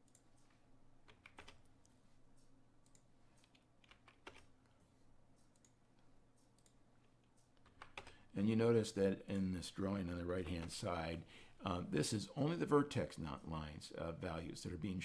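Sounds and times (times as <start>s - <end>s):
keyboard keystrokes and clicks: 0.0s - 4.8s, 5.4s - 8.3s, 10.3s - 10.8s
low steady hum: 0.0s - 15.0s.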